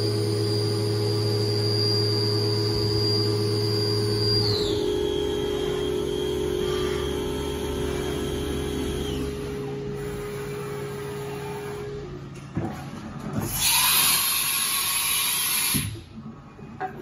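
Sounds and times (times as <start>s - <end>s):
machining center humming and whining: 0.0s - 13.5s.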